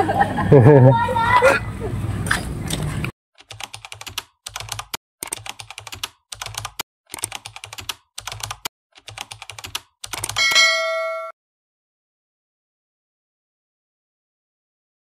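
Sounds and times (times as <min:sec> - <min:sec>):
keyboard key clicks: 0:03.4 - 0:10.4.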